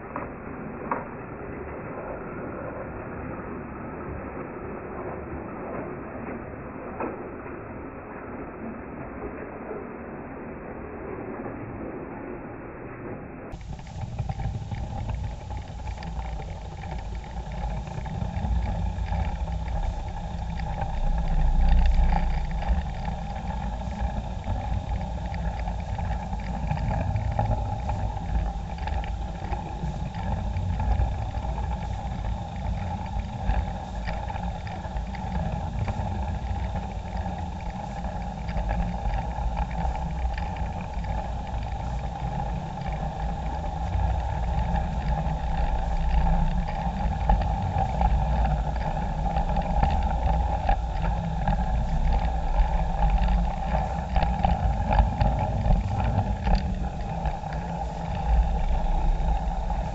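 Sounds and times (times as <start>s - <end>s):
wheels rumbling: 13.4s - 59.9s
electric motor whine: 13.5s - 59.9s
wheels clicking over rails: 13.5s - 59.9s.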